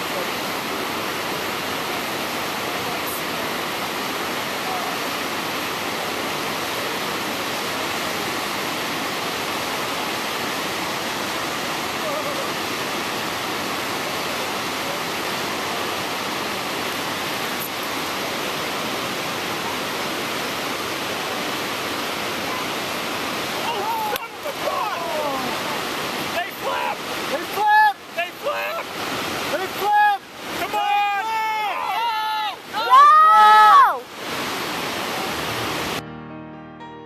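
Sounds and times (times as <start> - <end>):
whitewater rushing: 0.0 - 36.0.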